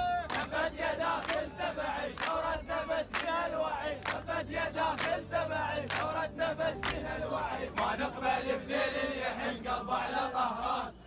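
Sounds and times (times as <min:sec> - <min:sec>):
men chanting in unison: 0:00.0 - 0:11.0.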